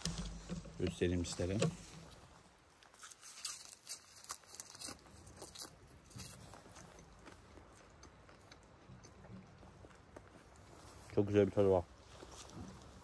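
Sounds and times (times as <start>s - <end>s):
plant stems snapping and tearing: 3.0s - 6.4s.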